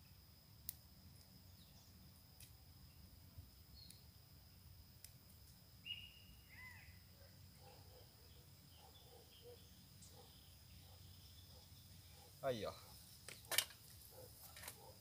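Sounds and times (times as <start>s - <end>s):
short bird calls: 5.8s - 7.0s.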